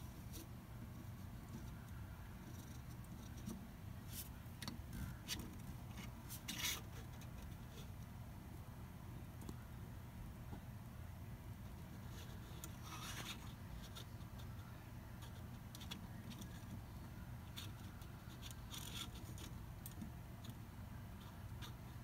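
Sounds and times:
low room hum: 0.0 - 22.0
plastic figure scratching and clicking: 0.3 - 8.0, 11.7 - 14.6, 15.2 - 22.0.

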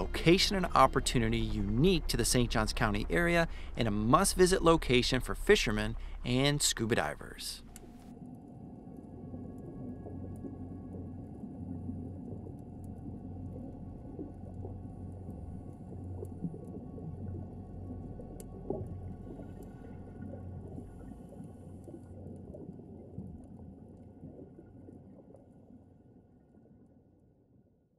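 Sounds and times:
faint crackles and ticks: 0.0 - 27.3
low underwater hum and rumble: 0.0 - 27.9.

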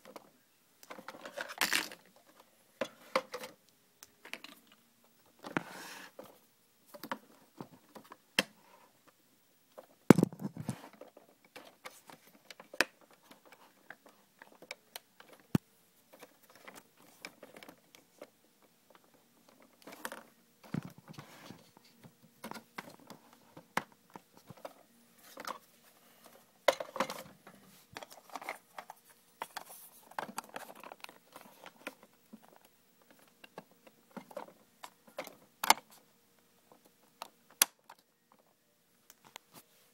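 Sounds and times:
plastic toy parts clicking and scraping: 0.8 - 3.6, 10.5 - 18.3, 27.9 - 36.0.

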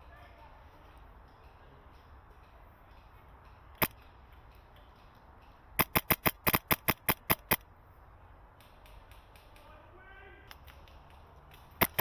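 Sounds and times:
airsoft rifle shots: 5.8 - 7.6, 11.7 - 12.0.

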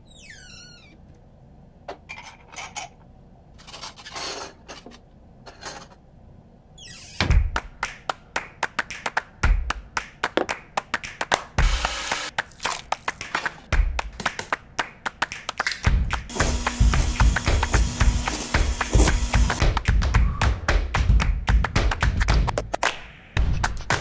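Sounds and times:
rhythmic percussive beat: 8.7 - 24.0.

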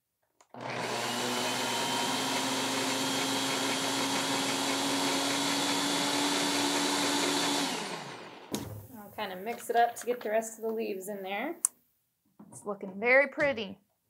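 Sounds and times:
blender running: 0.5 - 8.6.

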